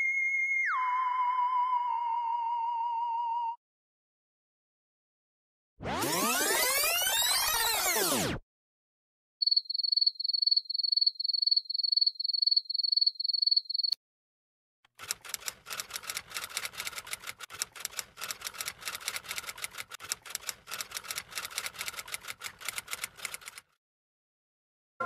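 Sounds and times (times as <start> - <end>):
manual typewriter typing: 14.9 - 23.8.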